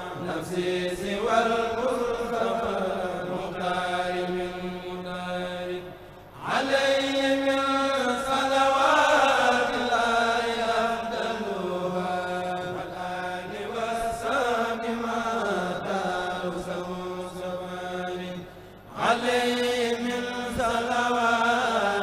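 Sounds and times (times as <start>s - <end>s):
men chanting through microphones: 0.0s - 22.0s.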